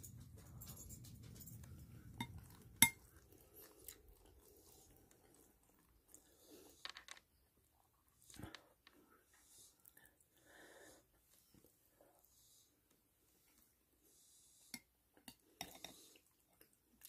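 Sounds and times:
faint chewing: 0:00.0 - 0:10.4, 0:14.7 - 0:17.0
metal spoon clinking bowl: 0:00.1 - 0:03.1.

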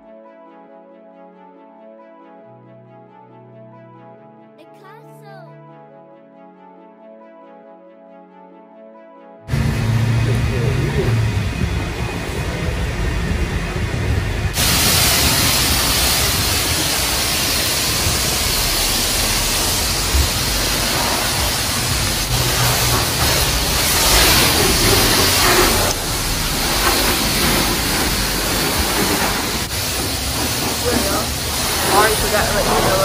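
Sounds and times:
pressure washer spraying car: 0:14.5 - 0:33.0.

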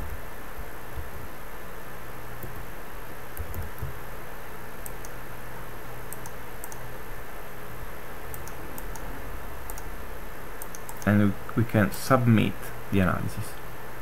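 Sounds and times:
steady hiss and low hum: 0:00.0 - 0:14.0
keyboard and mouse clicking: 0:02.4 - 0:02.6, 0:03.3 - 0:04.0, 0:06.1 - 0:06.8, 0:08.3 - 0:09.1, 0:09.7 - 0:09.9, 0:10.6 - 0:11.2.

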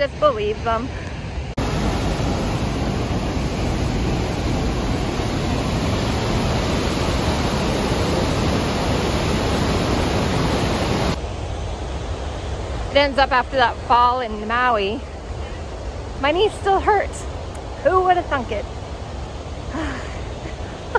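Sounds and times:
waterfall rushing: 0:01.5 - 0:11.2.

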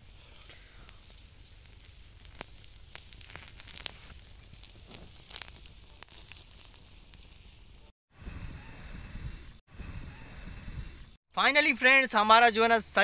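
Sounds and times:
twig fire crackling and popping: 0:00.0 - 0:08.0.

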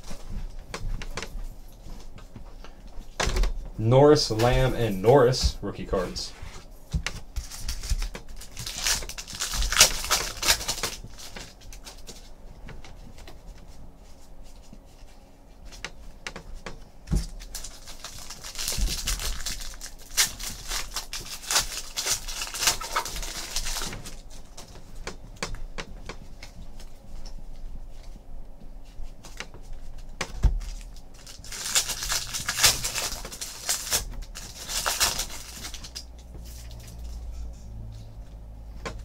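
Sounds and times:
cards being shuffled: 0:06.0 - 0:16.0
foil wrapper crinkling: 0:07.1 - 0:12.3, 0:17.1 - 0:24.8, 0:29.2 - 0:37.2.

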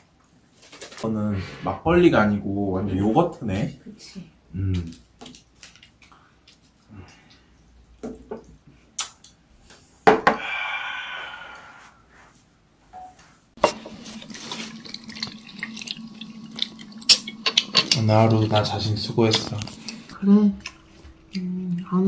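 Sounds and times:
liquid pouring over ice: 0:13.6 - 0:20.1.

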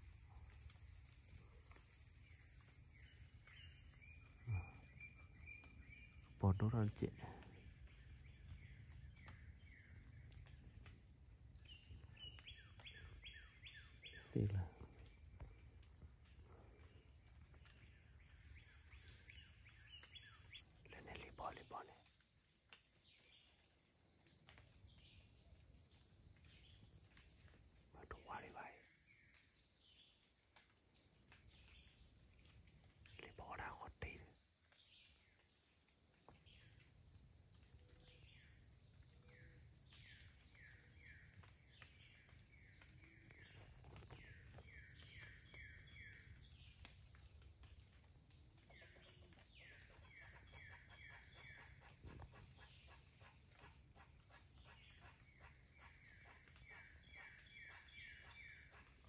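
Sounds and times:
high-pitched insect chorus: 0:00.0 - 0:59.0.

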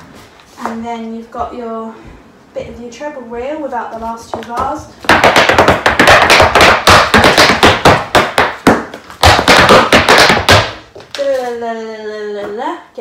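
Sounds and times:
hard shoes stamping on floor: 0:03.9 - 0:11.2.

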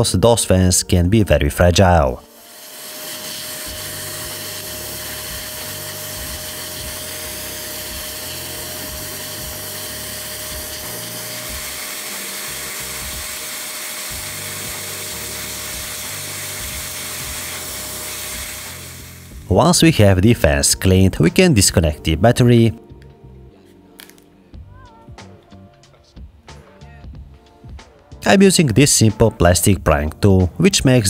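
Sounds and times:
background music with bass: 0:00.0 - 0:02.3, 0:03.7 - 0:13.5, 0:14.1 - 0:31.0
electric cleaner motor whine: 0:02.0 - 0:19.9.

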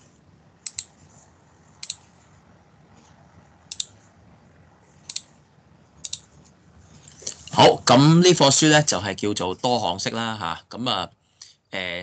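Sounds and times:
faint low hum: 0:00.0 - 0:12.0
sharp clicks: 0:00.6 - 0:00.9, 0:01.8 - 0:02.0, 0:03.7 - 0:04.0, 0:05.0 - 0:05.3, 0:06.0 - 0:06.3.

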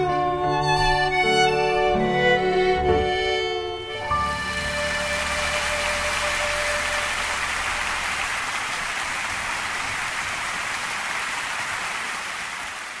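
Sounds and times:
held accompaniment note: 0:00.0 - 0:07.6
audience applauding: 0:04.3 - 0:13.0.

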